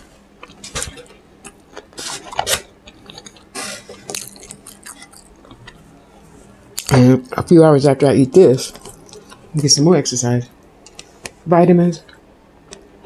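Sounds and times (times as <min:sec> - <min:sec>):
chewing: 0:00.4 - 0:06.2, 0:08.7 - 0:09.5.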